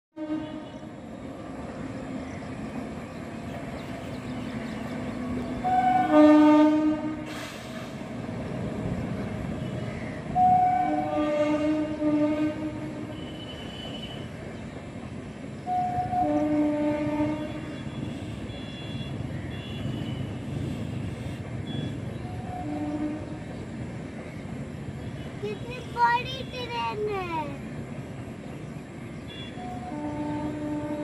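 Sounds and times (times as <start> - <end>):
locomotive horn blasts: 0.2 - 0.9, 5.6 - 7.4, 9.6 - 14.3, 15.6 - 23.4, 29.3 - 31.0
train rumbling past: 0.2 - 31.0.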